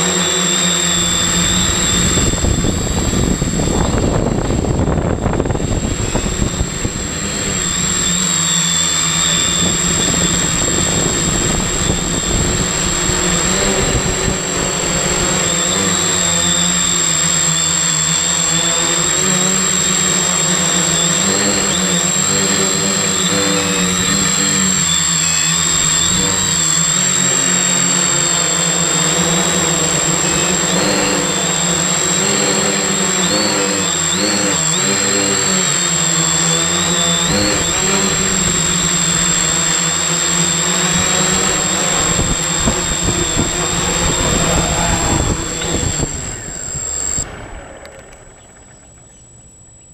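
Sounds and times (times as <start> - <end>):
drone motors buzzing: 0.0 - 49.7
high-pitched whine: 0.0 - 49.9
wind buffeting microphone: 1.2 - 8.2, 9.3 - 15.6, 40.6 - 49.0.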